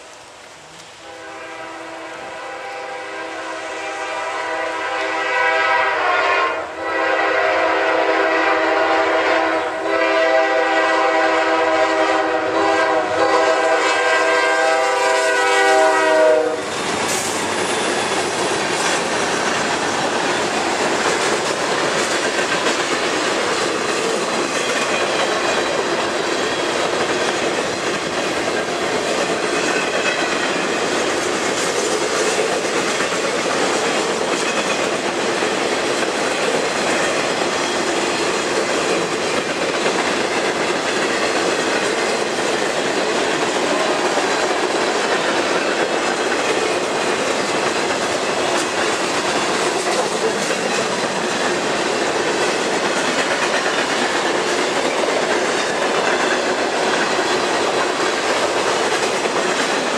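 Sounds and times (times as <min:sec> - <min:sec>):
train air horn blast: 0:00.8 - 0:17.5
wheels clacking over rail: 0:16.7 - 0:59.9.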